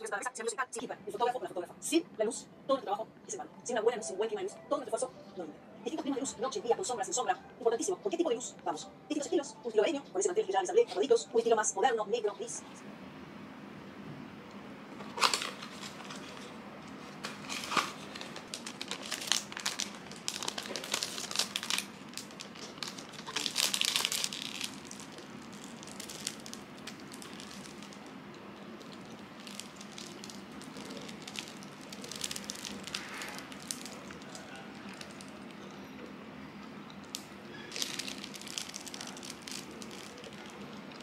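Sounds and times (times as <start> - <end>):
plastic wrapper crinkling: 15.0 - 35.9, 37.0 - 41.0.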